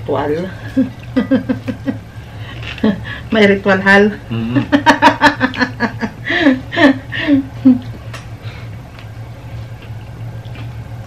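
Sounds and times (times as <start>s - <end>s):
low room hum: 0.0s - 11.0s
people eating with hands: 0.2s - 3.0s, 7.7s - 11.0s.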